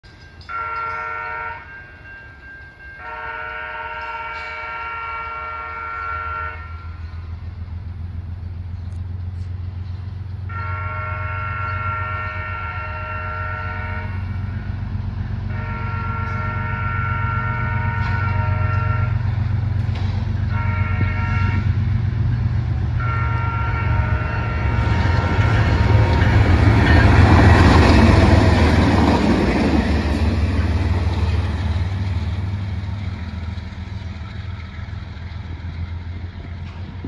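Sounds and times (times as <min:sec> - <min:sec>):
train wheels on rails: 0:00.0 - 0:37.0
locomotive horn blasts: 0:00.5 - 0:01.8, 0:02.9 - 0:07.2, 0:10.5 - 0:14.7, 0:15.4 - 0:22.1, 0:22.8 - 0:32.3
diesel engine rumble: 0:06.8 - 0:37.0.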